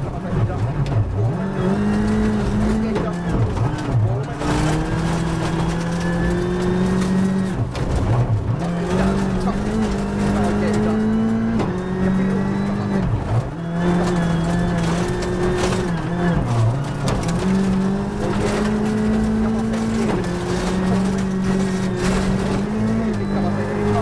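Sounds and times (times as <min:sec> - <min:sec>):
rally car engine revving: 0:00.0 - 0:24.0.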